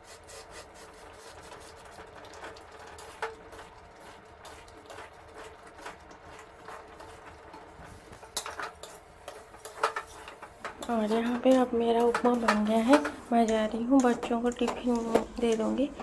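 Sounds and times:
metal spatula scraping and clinking: 8.2s - 16.0s.

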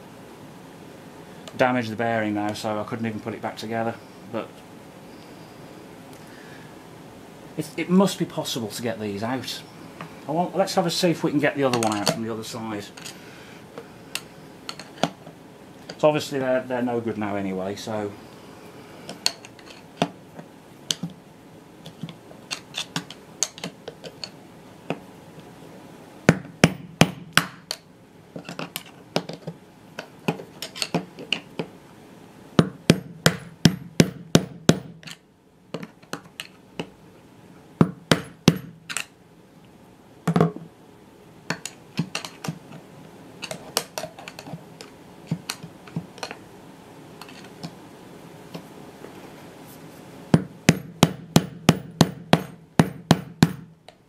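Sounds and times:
hammer knocking on metal rod: 26.3s - 27.6s, 32.6s - 35.1s, 37.8s - 38.8s, 50.4s - 53.7s.

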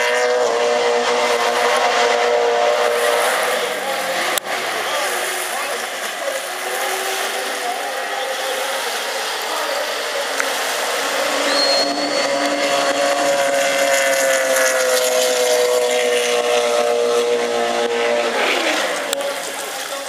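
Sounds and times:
powerboat engine passing: 0.0s - 20.0s.

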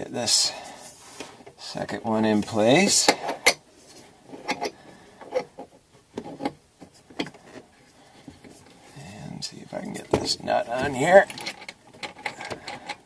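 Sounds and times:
metal clicks and scrapes of nut: 2.9s - 3.6s, 4.3s - 6.6s, 11.2s - 13.0s.

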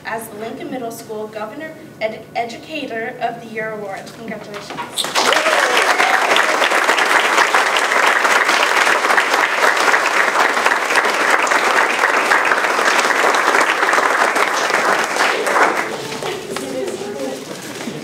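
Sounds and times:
audience applauding: 5.0s - 17.0s.

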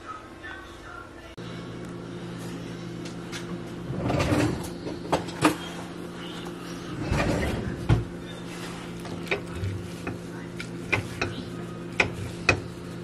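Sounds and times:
utensils scraping on a plate: 6.9s - 13.0s.

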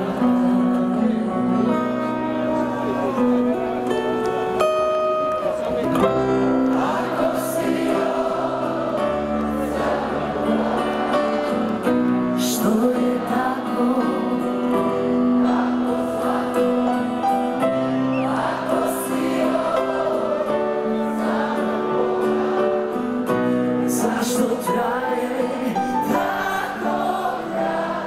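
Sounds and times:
crowd singing along: 0.0s - 4.9s, 6.0s - 28.0s
pop-rock band playing live: 0.0s - 28.0s.

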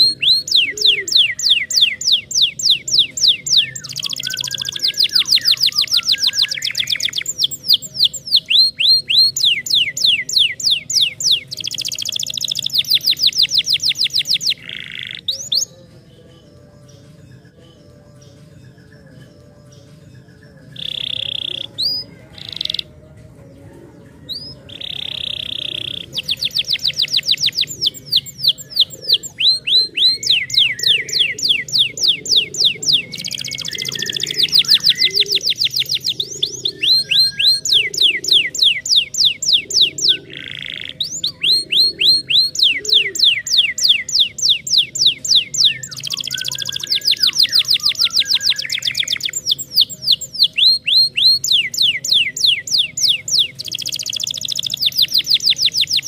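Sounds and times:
canary singing trills: 0.0s - 56.0s
canary buzzy calls: 24.7s - 56.0s.

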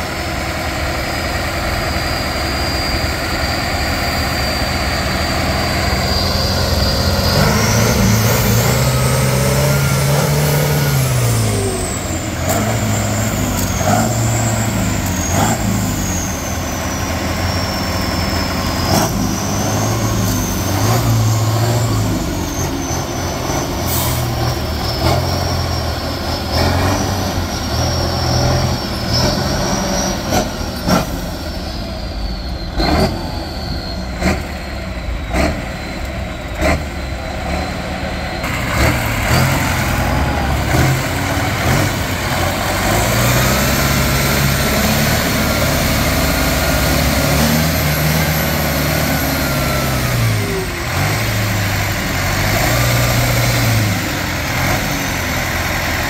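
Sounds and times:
high whine: 0.0s - 26.4s
buggy engine revving: 0.0s - 32.1s, 32.7s - 56.0s.

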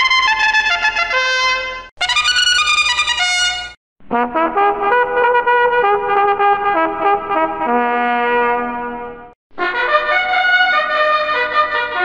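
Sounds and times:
musical bus horn melody: 0.0s - 12.0s.

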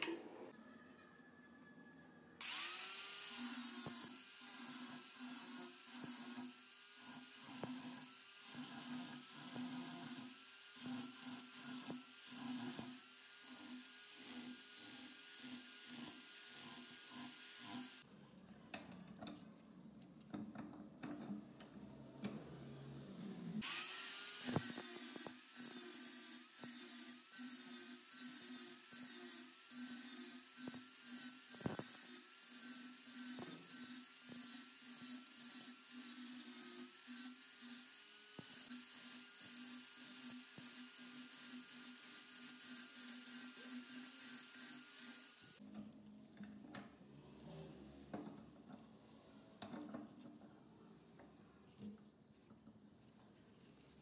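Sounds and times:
angle grinder grinding metal: 2.4s - 18.0s, 23.6s - 45.6s.

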